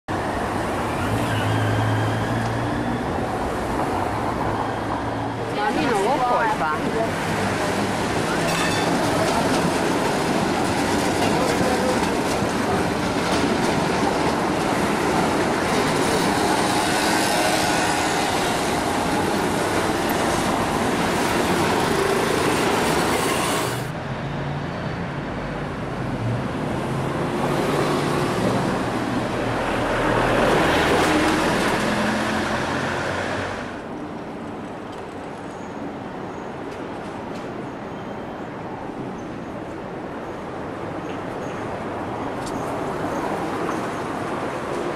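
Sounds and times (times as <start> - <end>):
tram rolling past on rails: 0.1 - 44.9
passing motor vehicles: 11.3 - 34.2.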